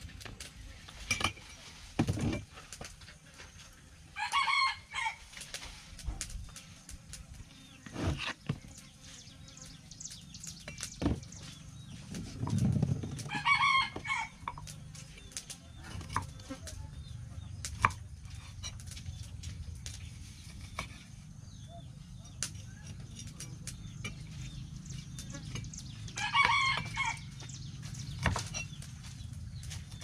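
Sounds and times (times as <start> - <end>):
rooster crowing: 4.2 - 5.2, 13.3 - 14.5, 26.2 - 27.3.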